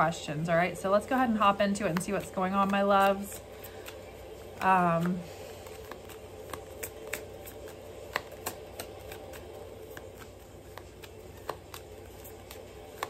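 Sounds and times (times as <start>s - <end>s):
cards being shuffled: 0.8s - 13.0s.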